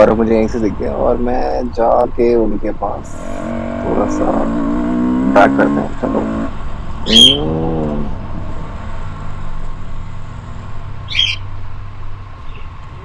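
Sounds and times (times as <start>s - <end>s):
loud rising and falling call: 3.0s - 5.5s, 6.2s - 8.2s, 11.1s - 11.4s.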